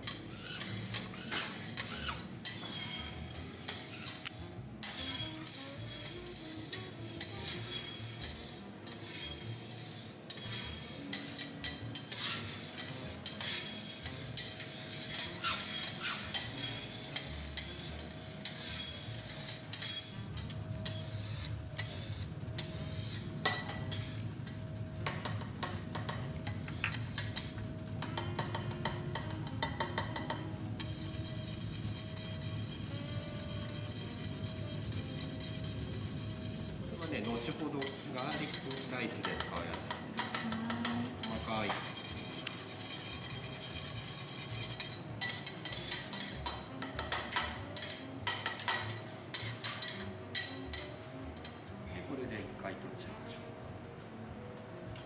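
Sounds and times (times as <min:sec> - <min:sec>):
metal spatulas scraping griddle: 0:00.0 - 0:51.6.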